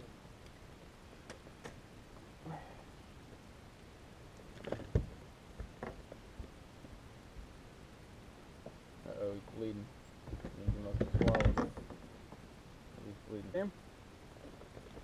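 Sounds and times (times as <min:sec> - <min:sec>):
knocks and clicks against a kayak: 0:10.2 - 0:12.4.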